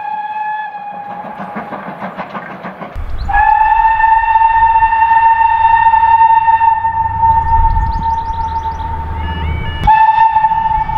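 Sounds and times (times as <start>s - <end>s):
steam locomotive whistle: 0.0s - 2.0s, 3.0s - 10.9s
rhythmic exhaust chuffs: 0.9s - 10.9s.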